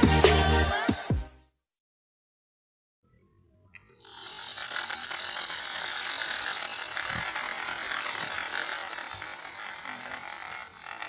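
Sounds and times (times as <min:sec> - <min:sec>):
toy car motor whirring: 0:03.8 - 0:11.0.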